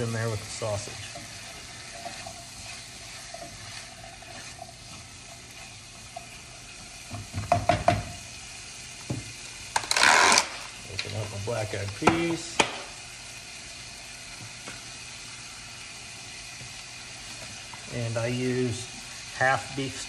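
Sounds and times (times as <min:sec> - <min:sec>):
food sizzling in a pan: 0:00.0 - 0:20.0
spoon knocking against pan: 0:07.1 - 0:08.2.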